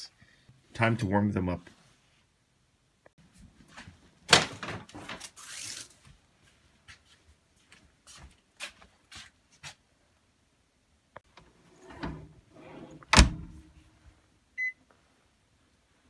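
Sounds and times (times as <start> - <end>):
microwave door shutting: 12.9 - 13.6.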